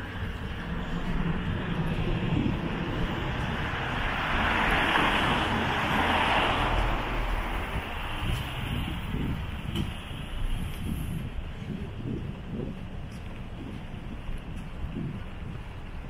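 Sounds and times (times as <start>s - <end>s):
vehicle passing by: 0.0s - 9.4s
low rumble of city traffic: 0.0s - 16.0s.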